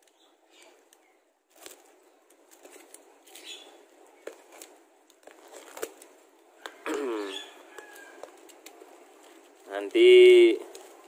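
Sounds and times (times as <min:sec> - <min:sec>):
knife cutting plastic wrapping: 0:04.3 - 0:06.2.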